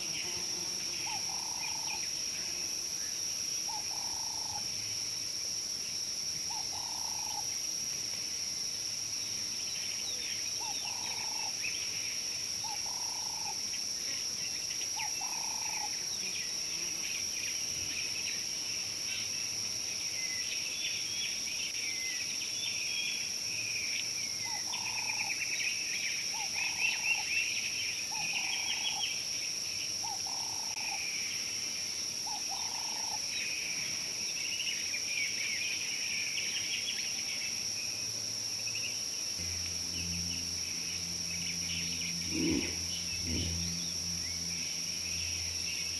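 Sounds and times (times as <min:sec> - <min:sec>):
high insect drone: 0:00.0 - 0:45.9
birds chirping: 0:39.5 - 0:45.9.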